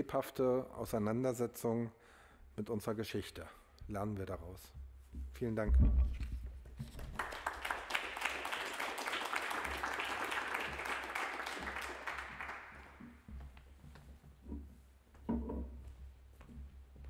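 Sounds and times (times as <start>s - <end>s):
audience applause: 7.1s - 13.1s.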